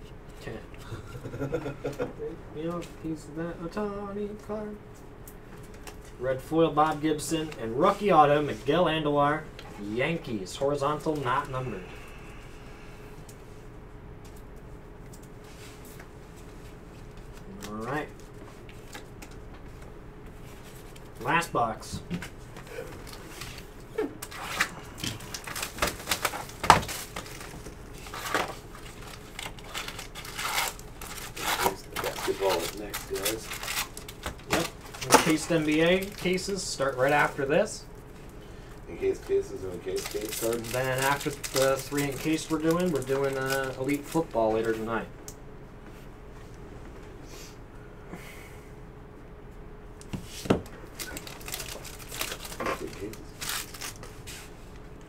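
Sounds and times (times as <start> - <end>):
foil wrapper crinkling: 22.9 - 37.5, 39.0 - 44.9, 50.8 - 54.5.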